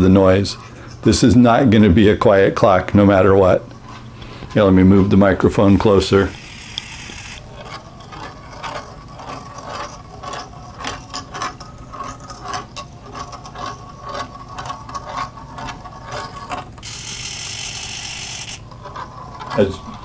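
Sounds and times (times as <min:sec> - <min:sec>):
servo motor whirring: 0:06.3 - 0:07.5, 0:16.8 - 0:18.6
steel ball clicking and rattling: 0:06.3 - 0:20.0.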